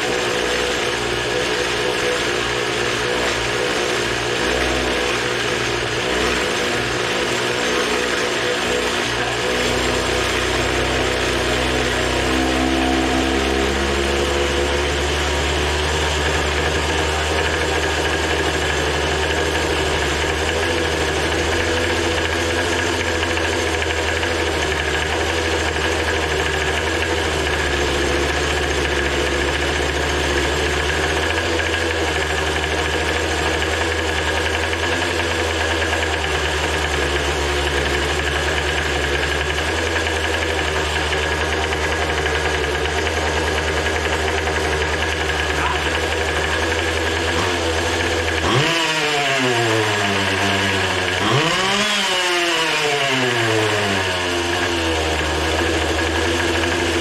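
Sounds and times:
two-stroke engine running: 0:00.0 - 0:57.0.

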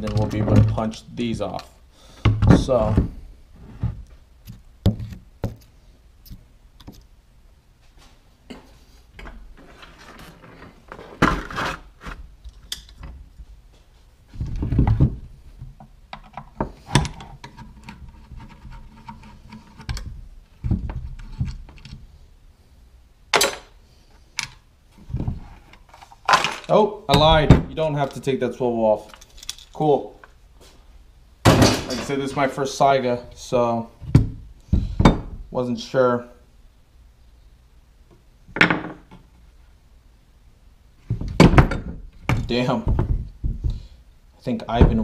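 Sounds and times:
parts thunking on workbench: 0:02.2 - 0:03.2, 0:10.9 - 0:11.8, 0:26.3 - 0:27.7, 0:31.4 - 0:32.2, 0:34.0 - 0:35.4, 0:38.6 - 0:39.2, 0:41.1 - 0:43.8.

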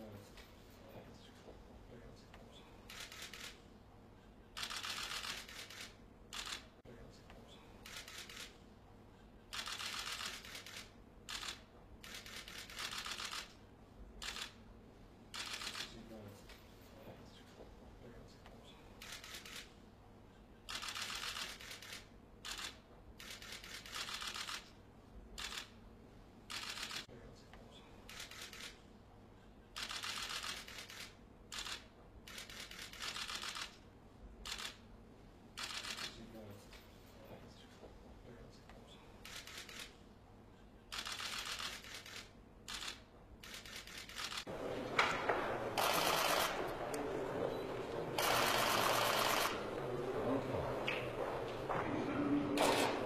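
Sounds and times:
camera shutters clicking: 0:02.9 - 0:03.6, 0:04.6 - 0:06.6, 0:09.5 - 0:13.6, 0:15.4 - 0:15.9, 0:20.7 - 0:24.7, 0:29.8 - 0:33.8, 0:35.6 - 0:36.1, 0:40.9 - 0:49.6, 0:52.6 - 0:53.0.

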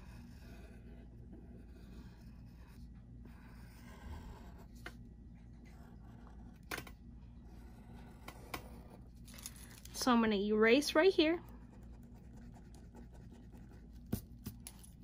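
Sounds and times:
pencil lead scratching on paper: 0:00.0 - 0:05.0, 0:05.6 - 0:06.6, 0:07.4 - 0:09.1, 0:11.5 - 0:14.2.

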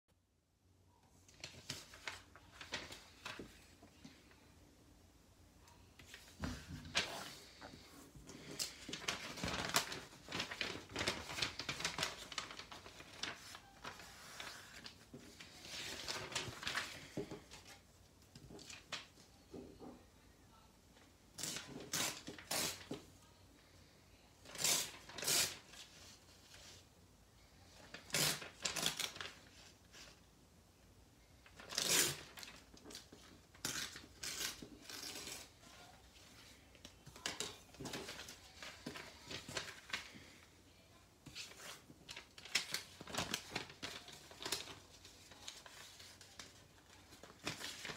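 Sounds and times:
paper rustling and tearing: 0:01.3 - 0:03.7, 0:06.0 - 0:17.8, 0:21.4 - 0:23.0, 0:24.5 - 0:26.8, 0:27.8 - 0:30.2, 0:31.4 - 0:40.4, 0:41.2 - 0:47.9.

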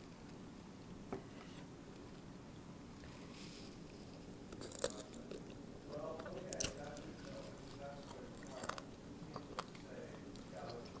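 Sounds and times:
fingers picking through food: 0:03.3 - 0:11.0.

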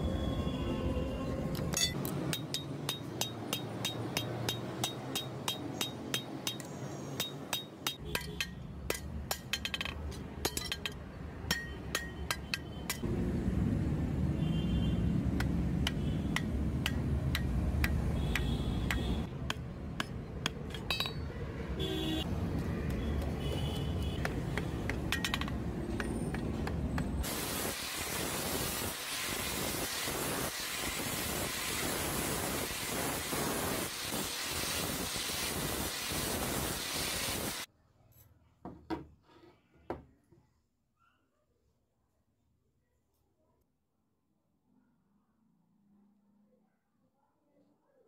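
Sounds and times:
hammer tapping on metal: 0:01.8 - 0:13.0, 0:15.4 - 0:21.3.

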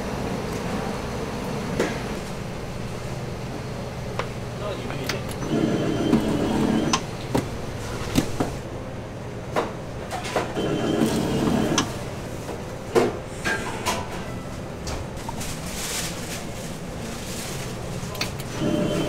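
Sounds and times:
cutting machine running: 0:05.4 - 0:07.0, 0:10.6 - 0:12.1, 0:18.4 - 0:19.0.

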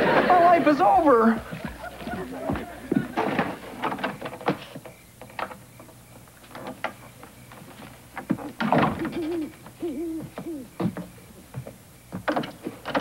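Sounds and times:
owl hooting: 0:08.9 - 0:11.4.

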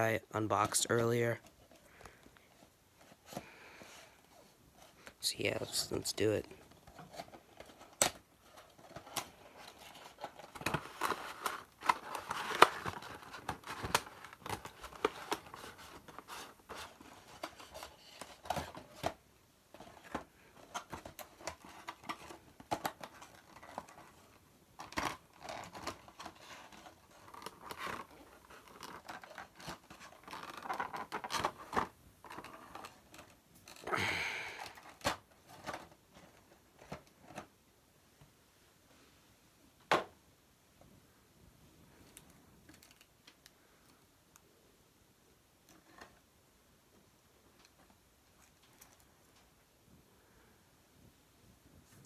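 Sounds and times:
cardboard and plastic scraping: 0:00.6 - 0:37.5.

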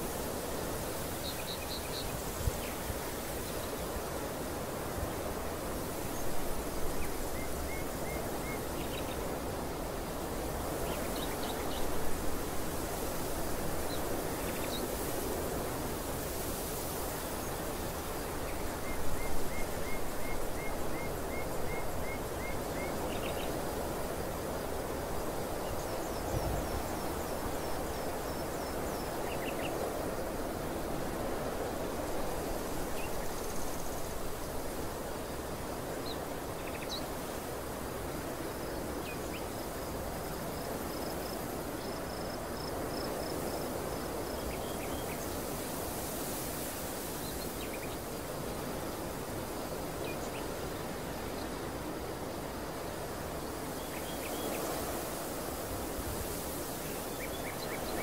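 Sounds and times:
wind rushing over grass: 0:00.0 - 0:58.0.

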